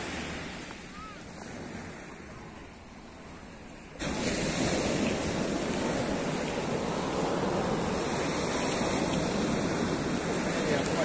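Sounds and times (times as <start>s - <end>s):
small waves breaking on sand: 0.0s - 11.0s.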